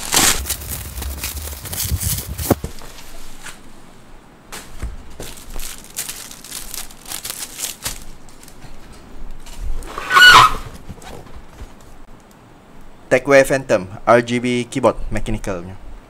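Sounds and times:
bubble wrap crinkling: 0.0 - 3.2, 4.5 - 8.8.

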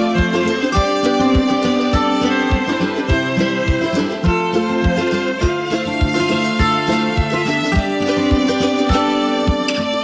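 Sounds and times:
instrumental music with drum beat: 0.0 - 10.0.

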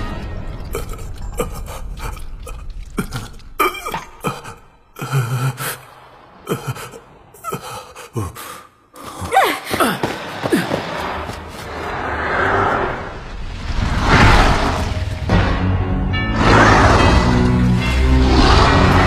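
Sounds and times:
man gasping for breath: 6.5 - 10.8.

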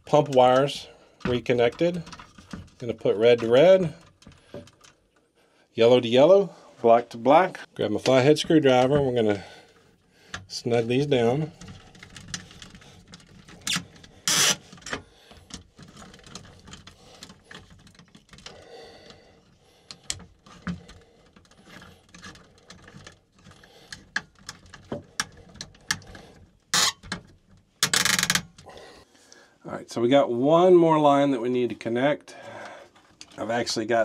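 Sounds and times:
small metal clicks and ticks: 11.1 - 28.7.

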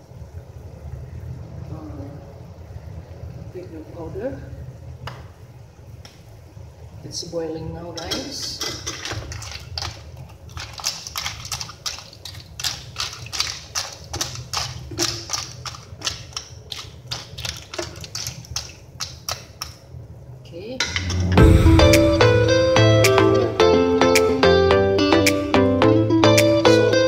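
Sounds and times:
clam shells clattering in a pan: 8.0 - 19.7.

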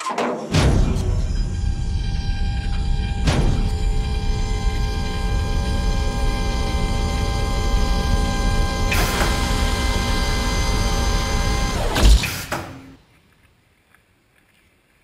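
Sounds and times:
electronic drone: 0.0 - 13.0
low rumble: 0.6 - 11.8.

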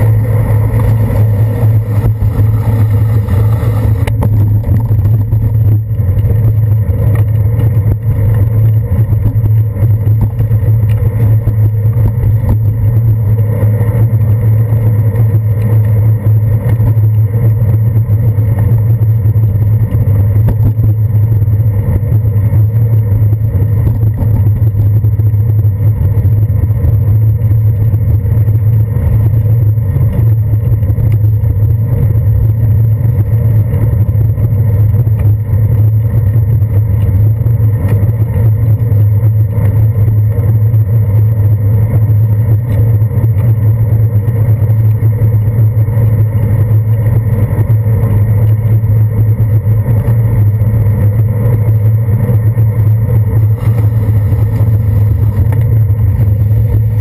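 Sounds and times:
wind buffeting: 0.0 - 14.2, 50.9 - 57.0
road vibration rumble: 0.0 - 57.0.

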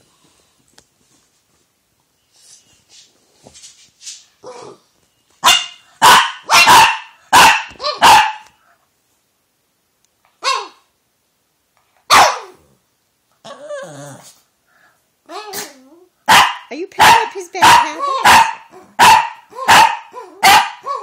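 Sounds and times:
dog barking: 5.4 - 8.6, 12.1 - 12.6, 16.3 - 21.0.

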